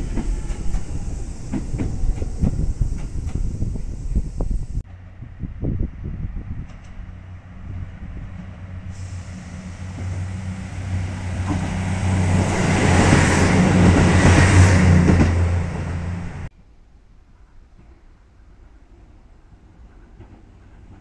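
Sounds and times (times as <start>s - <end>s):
wheels rushing on rails: 0.0s - 16.5s.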